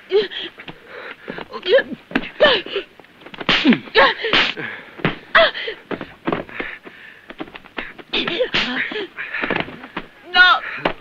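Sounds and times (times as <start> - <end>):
woman crying out: 1.5 - 2.9.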